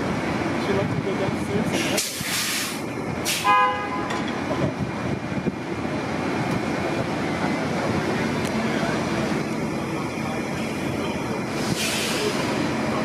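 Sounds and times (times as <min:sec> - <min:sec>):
trolley bus moving along street: 0:00.0 - 0:13.0
vehicle horn toot: 0:03.4 - 0:04.1.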